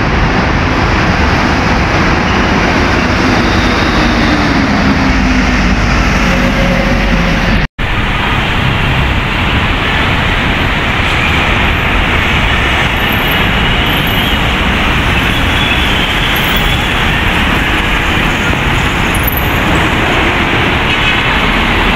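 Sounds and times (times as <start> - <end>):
bus passing: 0.0 - 21.9
passing trucks: 0.0 - 21.9.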